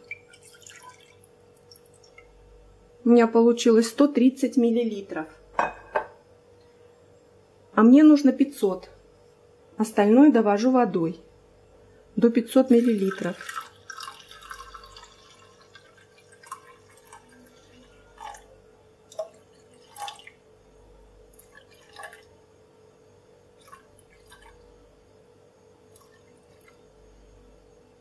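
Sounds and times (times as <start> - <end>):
drips and small splashes: 0.0 - 2.3, 12.8 - 20.4, 21.3 - 22.3, 23.6 - 24.6, 25.9 - 26.8
water trickling into saucepan: 0.0 - 2.3, 12.7 - 20.5, 21.3 - 22.3, 23.5 - 24.7, 25.9 - 26.8.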